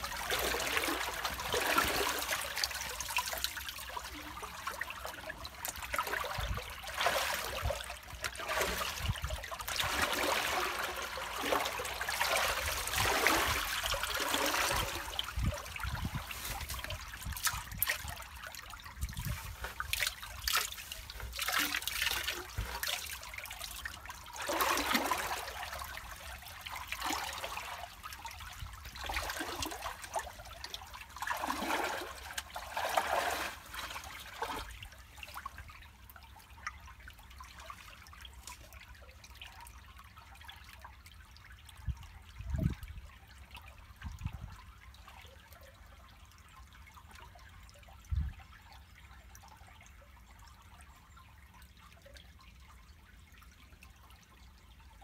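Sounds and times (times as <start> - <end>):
water gushing out of drain: 0.0 - 28.0, 28.7 - 34.8.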